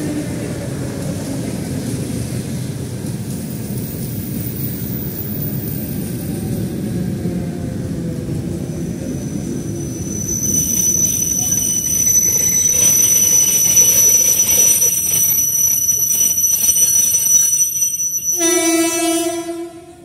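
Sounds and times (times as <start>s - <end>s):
electric train rumbling to a stop: 0.0s - 20.0s
high-pitched brake squeal: 8.9s - 20.0s
train horn blast: 18.4s - 20.0s.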